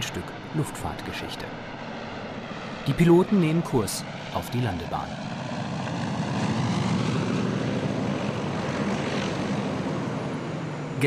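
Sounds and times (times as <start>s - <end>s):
propeller airliner droning overhead: 0.0s - 11.0s.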